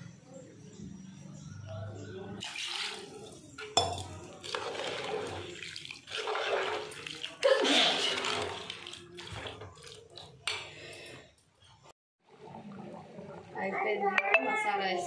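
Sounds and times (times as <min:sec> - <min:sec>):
ladle stirring thick curry: 0:02.5 - 0:10.8.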